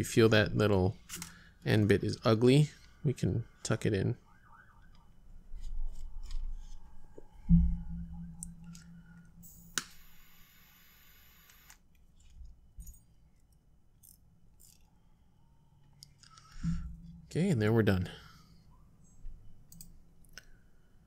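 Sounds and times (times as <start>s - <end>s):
low hum: 0.3s - 11.7s, 15.0s - 19.6s.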